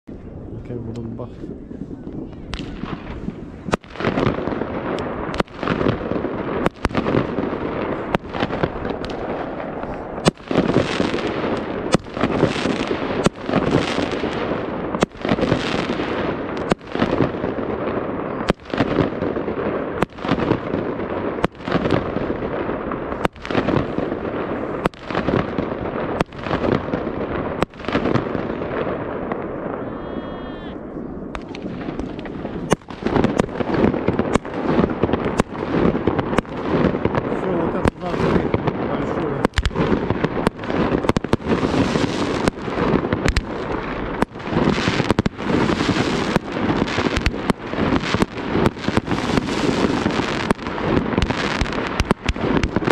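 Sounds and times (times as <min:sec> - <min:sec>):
fireworks bangs: 0:00.1 - 0:52.9
fireworks crackling: 0:00.1 - 0:52.9
wavering firework whistle: 0:29.6 - 0:31.6.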